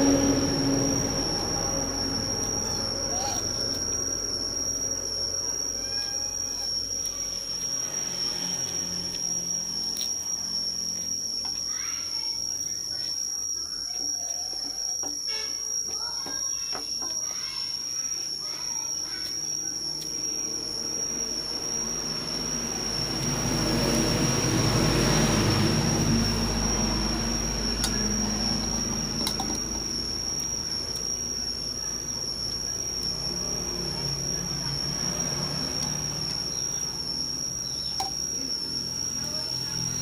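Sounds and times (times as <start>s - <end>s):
vehicle engine rumble passing: 0.0s - 5.8s, 7.4s - 11.2s, 20.3s - 40.0s
high-pitched whine: 0.0s - 40.0s.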